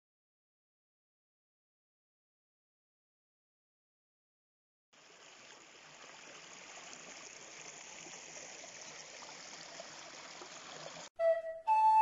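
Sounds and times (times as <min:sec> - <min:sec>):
stream trickling over stones: 0:05.0 - 0:11.1.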